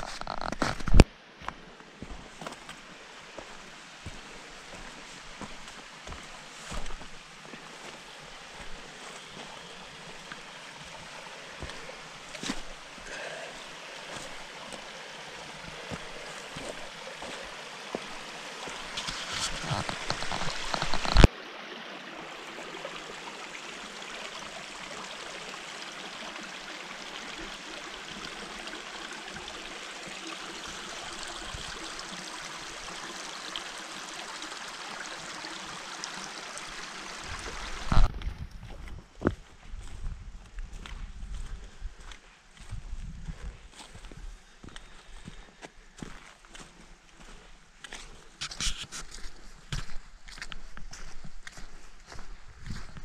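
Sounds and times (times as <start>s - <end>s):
creek rushing over rocks: 0.0s - 38.4s.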